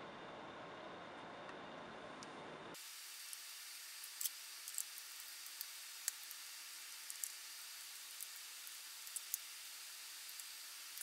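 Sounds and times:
steady hiss: 0:02.7 - 0:11.0.

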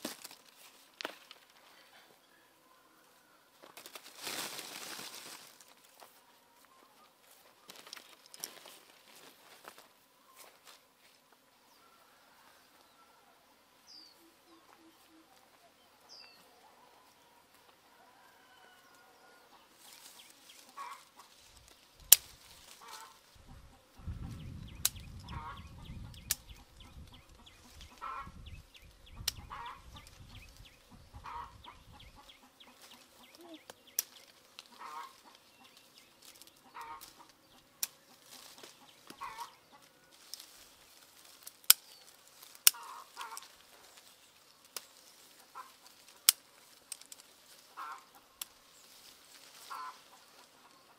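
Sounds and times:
chickens clucking: 0:18.5 - 0:21.4, 0:22.7 - 0:33.9, 0:34.6 - 0:40.1, 0:45.3 - 0:46.0, 0:47.6 - 0:48.6, 0:49.6 - 0:50.9.

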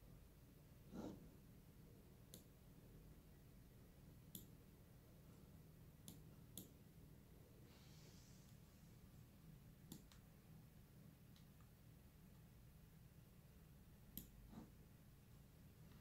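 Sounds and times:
computer mouse clicks: 0:02.2 - 0:02.5, 0:04.3 - 0:04.6, 0:06.0 - 0:06.8, 0:09.8 - 0:10.2, 0:14.1 - 0:14.6
soft rustle: 0:07.6 - 0:09.2.

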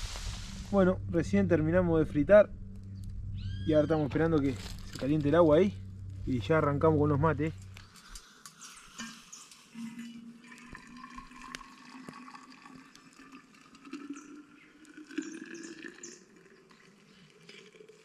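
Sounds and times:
hot water pouring into thermos: 0:07.9 - 0:18.0.

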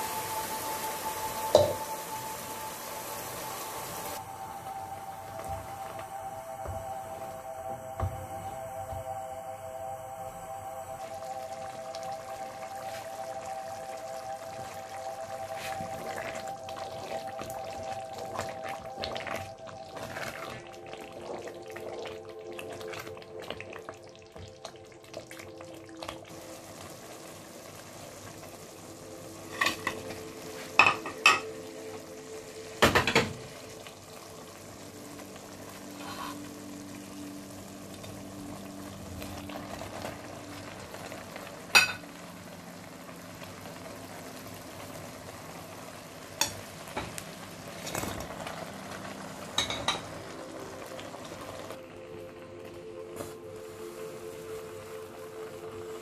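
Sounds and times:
food sizzling in oil: 0:00.0 - 0:56.0.

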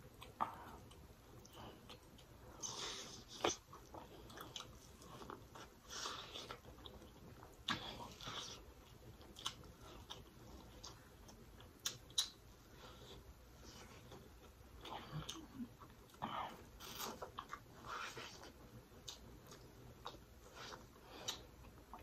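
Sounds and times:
wet chewing: 0:00.1 - 0:22.0
sharp mouth clicks: 0:11.8 - 0:12.4.

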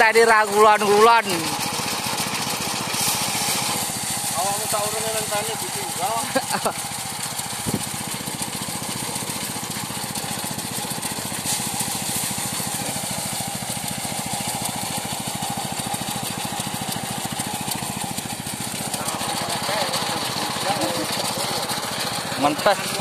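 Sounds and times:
small engine running: 0:00.0 - 0:23.0.

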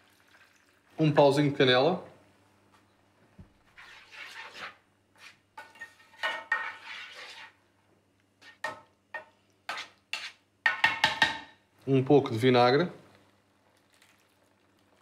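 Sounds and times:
spoon scraping metal tray: 0:03.8 - 0:07.6, 0:09.7 - 0:11.0.

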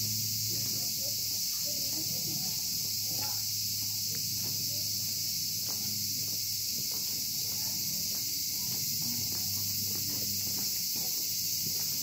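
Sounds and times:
faint footsteps: 0:00.0 - 0:12.0
high-pitched insect chorus: 0:00.0 - 0:12.0.

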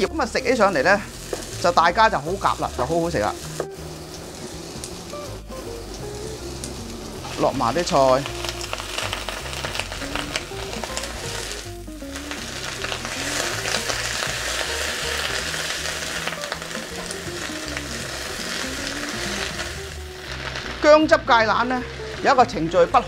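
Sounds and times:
vegetables sizzling in oil: 0:00.0 - 0:23.0
spatula stirring in wok: 0:03.2 - 0:20.8.

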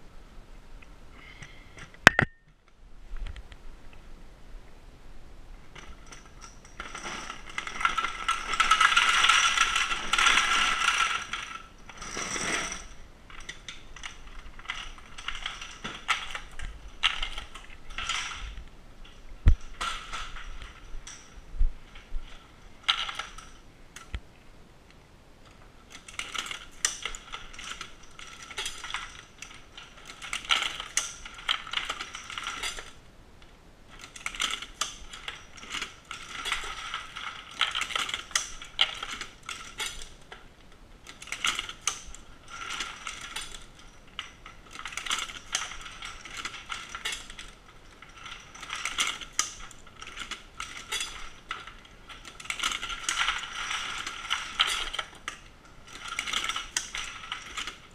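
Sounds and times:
reloading press clattering and clicking: 0:05.8 - 0:18.6, 0:25.9 - 0:33.0, 0:33.9 - 0:57.9.

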